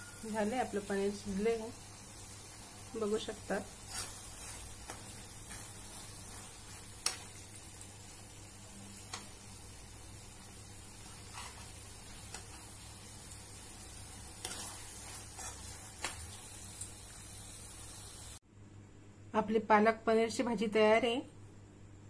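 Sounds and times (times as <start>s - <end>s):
gravy simmering sizzle: 0.0s - 18.4s
metal spoon scraping pan: 3.8s - 7.2s, 11.1s - 12.6s, 14.4s - 16.1s.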